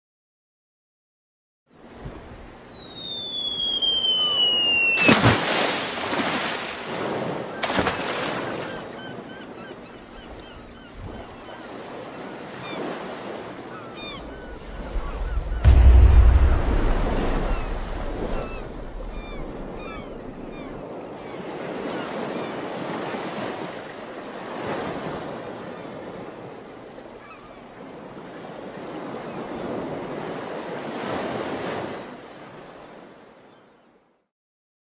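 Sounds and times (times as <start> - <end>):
gulls calling faintly: 2.3 - 5.8, 7.4 - 22.6
ocean waves surging: 4.2 - 8.9, 11.7 - 21.0
deep low boom: 14.4 - 20.8.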